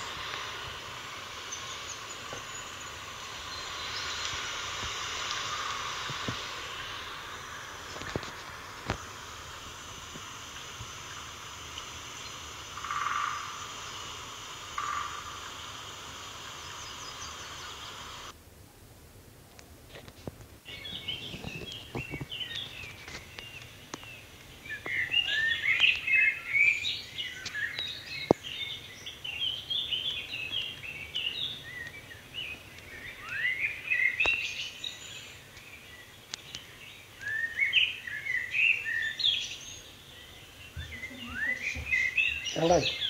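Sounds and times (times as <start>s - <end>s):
small birds chirping: 0.0s - 18.4s, 20.6s - 43.0s
sharp clicks: 3.8s - 6.9s.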